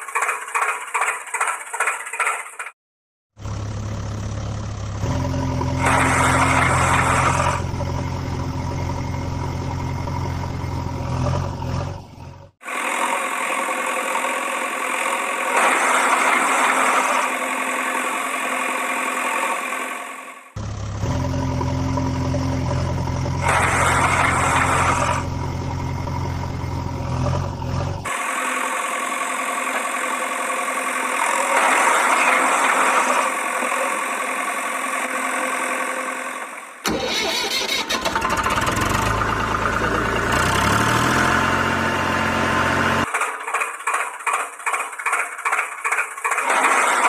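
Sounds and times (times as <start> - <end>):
engine cranking and catching: 0.0 - 2.8, 20.6 - 28.3, 36.4 - 47.0
harsh engine noise: 3.4 - 47.0
motor running steadily: 20.6 - 31.6.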